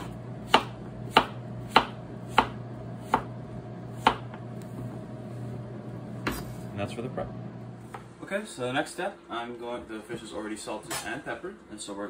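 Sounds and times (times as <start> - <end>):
knife chopping on plastic board: 0.0 - 3.4, 4.0 - 4.4.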